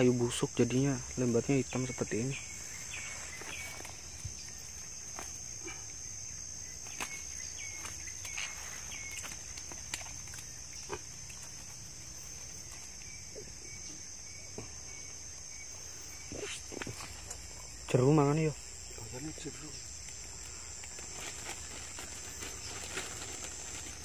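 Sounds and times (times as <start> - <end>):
insects buzzing: 0.0 - 24.0
rustling in dry leaves: 1.7 - 5.8, 6.7 - 13.4, 19.8 - 24.0.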